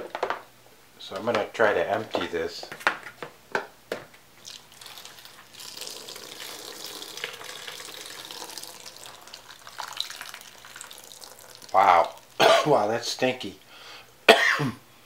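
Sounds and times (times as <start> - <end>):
liquid pouring from plastic tub: 4.4 - 12.4.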